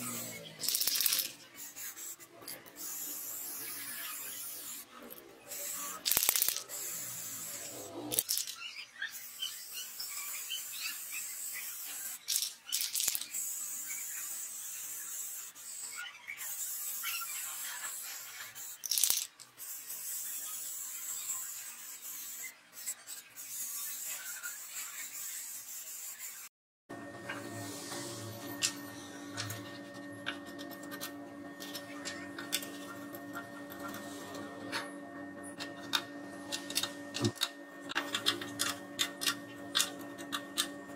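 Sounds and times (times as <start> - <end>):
spray paint can hissing: 0.0 - 4.9, 5.5 - 8.6, 9.2 - 26.5.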